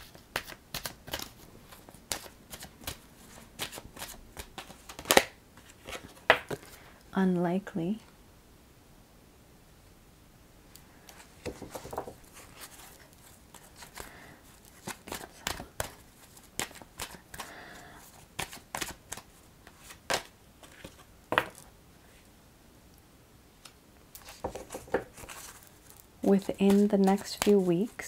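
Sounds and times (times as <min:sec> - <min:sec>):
cards snapping: 0:03.6 - 0:06.6.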